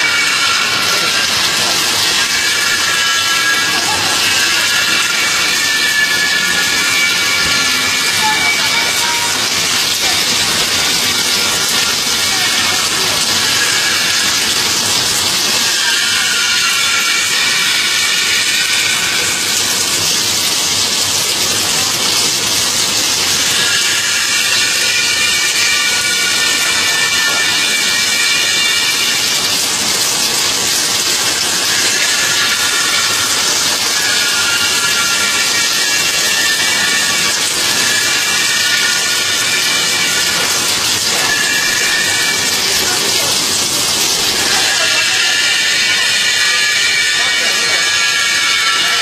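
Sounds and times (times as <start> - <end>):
machinery hissing: 0.0 - 49.0.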